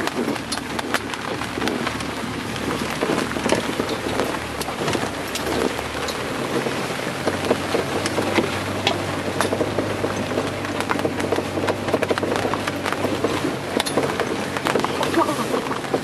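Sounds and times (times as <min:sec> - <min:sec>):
engine humming: 0:00.0 - 0:16.0
rattles and knocks: 0:00.0 - 0:16.0
road noise inside vehicle: 0:00.0 - 0:16.0
small crackles and clicks: 0:00.0 - 0:16.0.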